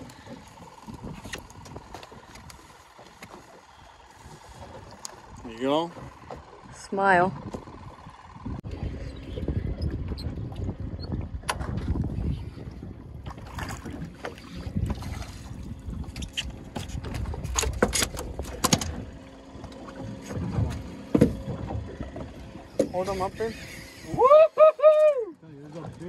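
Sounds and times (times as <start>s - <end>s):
knocks and clatters on boat: 0.0s - 24.2s
water against boat hull: 0.0s - 26.0s
wind on microphone: 6.7s - 19.0s.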